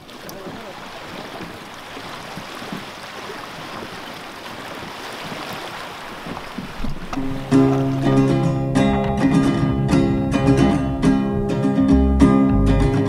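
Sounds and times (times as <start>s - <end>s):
sea water lapping and sloshing: 0.0s - 9.7s.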